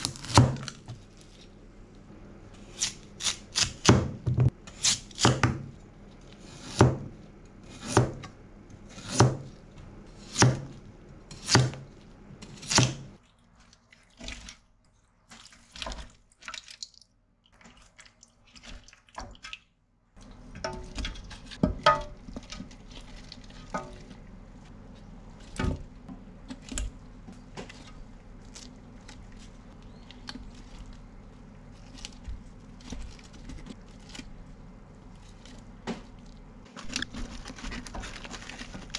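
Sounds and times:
low steady hum: 0.0s - 38.9s.

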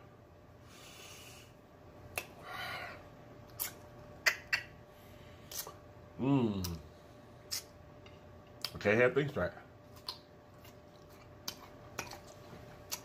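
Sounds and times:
lip-smacking clicks: 11.4s - 13.0s.

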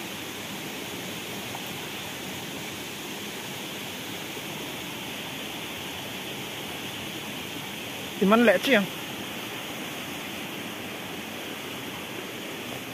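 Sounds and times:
stream rushing over boulders: 0.0s - 12.9s.

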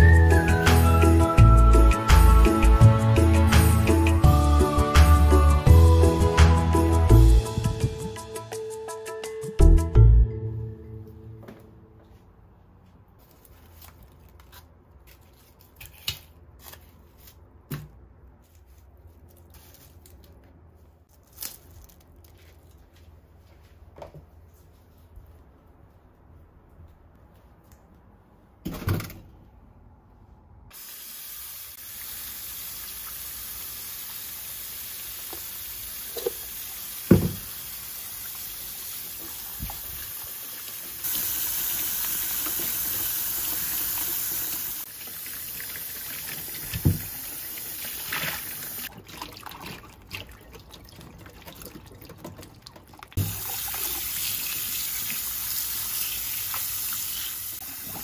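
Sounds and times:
water running from tap into sink: 30.8s - 48.9s, 53.2s - 58.0s.

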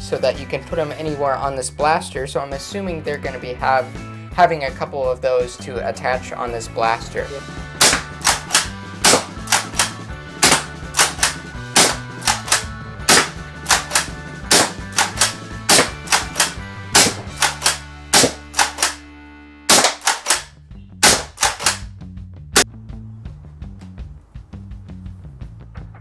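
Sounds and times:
background music: 0.0s - 26.0s
foam dart blaster firing pops: 7.8s - 11.2s, 11.8s - 19.0s.

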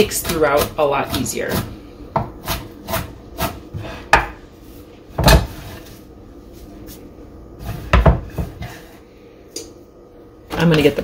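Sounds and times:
knife chopping on wooden board: 0.0s - 4.4s.

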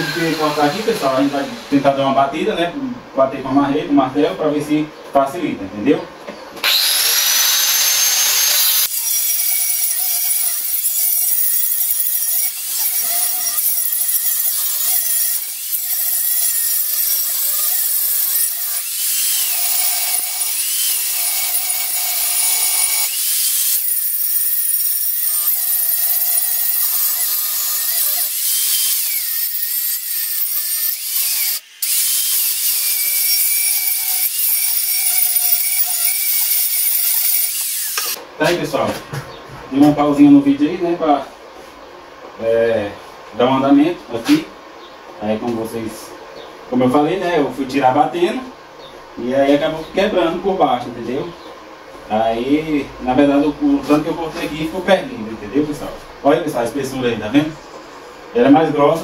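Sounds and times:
angle grinder cutting metal: 0.0s - 1.9s, 6.6s - 38.2s.

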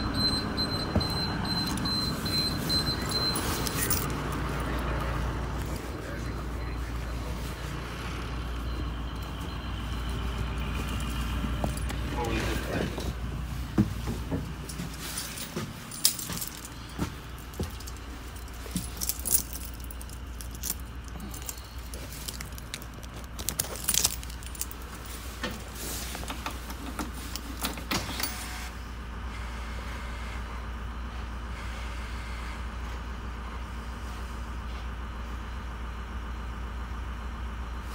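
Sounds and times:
bus engine low rumble: 0.0s - 37.9s
keys jangling: 2.6s - 4.8s, 14.6s - 25.8s.

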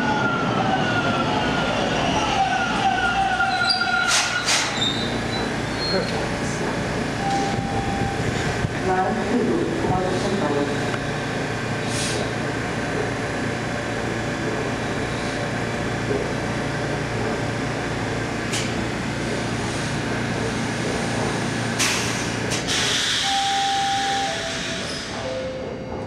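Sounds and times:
subway train equipment hum: 0.0s - 26.0s
hiss of air: 21.8s - 23.3s.

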